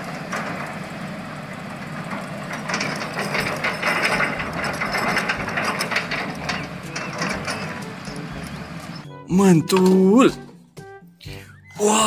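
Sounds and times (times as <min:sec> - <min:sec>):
diesel engine drone: 0:00.0 - 0:12.0
rough hiss and clatter: 0:01.8 - 0:08.9.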